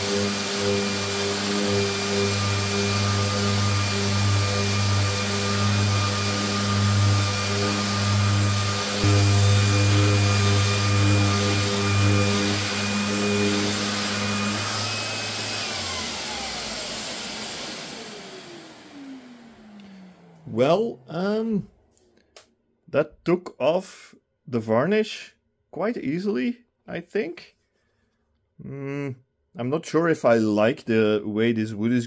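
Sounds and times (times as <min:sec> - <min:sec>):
rotary sander running on wood: 0:00.0 - 0:20.8
sander motor spinning down: 0:00.0 - 0:21.2.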